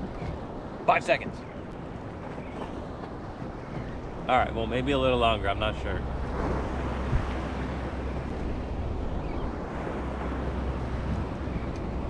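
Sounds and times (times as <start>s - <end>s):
wind and sea rushing: 0.0s - 12.0s
wind buffeting microphone: 0.0s - 12.0s.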